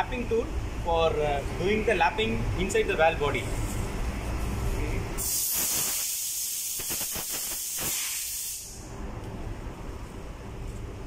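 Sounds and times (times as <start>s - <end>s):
air blow gun hissing: 5.2s - 8.9s.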